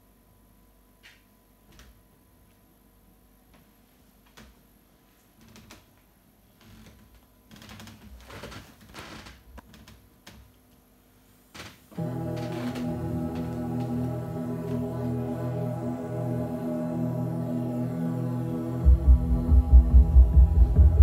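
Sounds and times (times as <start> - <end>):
backing track of sustained chords: 11.9 - 21.0.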